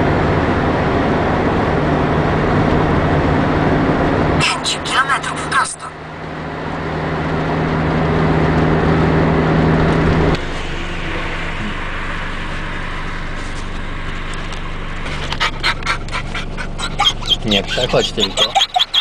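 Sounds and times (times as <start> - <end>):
car engine and road noise: 0.0 - 19.0
dog panting: 15.1 - 19.0.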